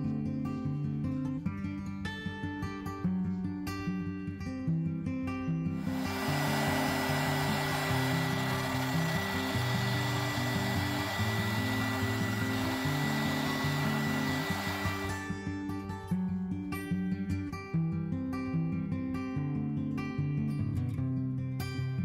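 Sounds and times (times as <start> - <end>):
heat gun blowing air: 5.8 - 15.4.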